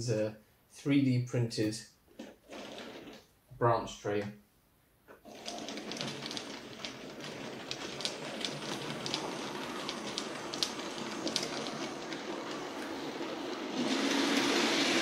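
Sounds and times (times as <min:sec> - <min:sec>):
wheels clicking over rail joints: 0:05.3 - 0:15.0
model train running on rails: 0:05.4 - 0:15.0.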